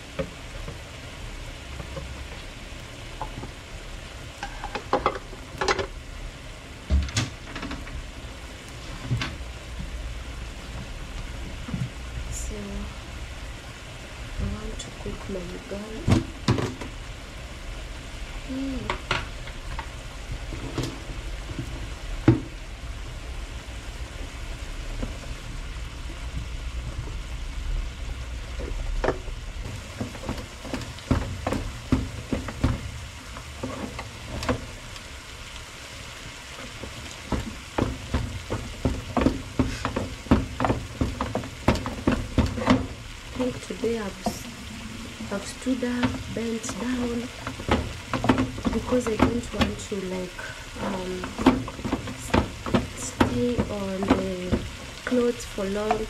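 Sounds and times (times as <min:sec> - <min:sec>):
wooden spoon stirring thick mixture: 0:36.8 - 0:43.5.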